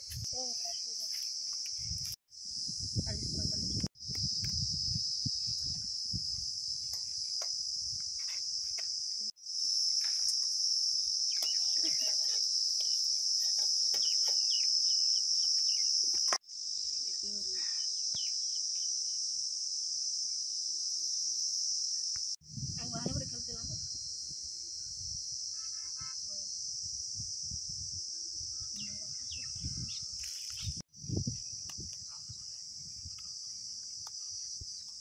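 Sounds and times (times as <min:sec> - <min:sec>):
crickets chirring: 0:00.0 - 0:35.0.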